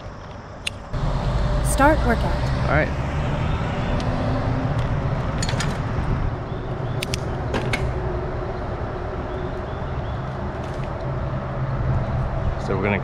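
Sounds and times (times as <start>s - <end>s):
bike clicks and rattles: 5.4s - 5.9s.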